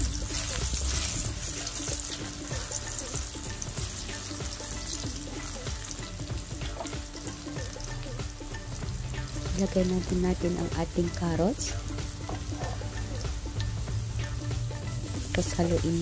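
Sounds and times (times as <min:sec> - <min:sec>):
wooden spatula stirring: 0:00.0 - 0:03.3
onions sizzling in oil: 0:00.0 - 0:16.0.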